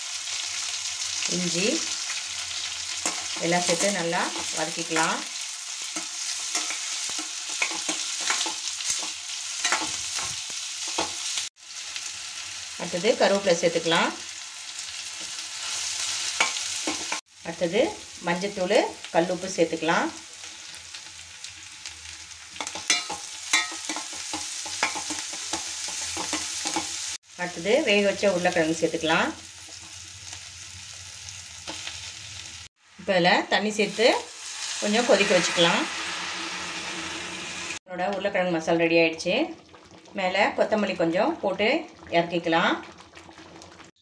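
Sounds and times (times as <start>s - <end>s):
onions sizzling in oil: 0.0s - 44.0s
metal spoon scraping pan: 5.8s - 11.2s, 22.6s - 27.1s, 34.8s - 37.8s.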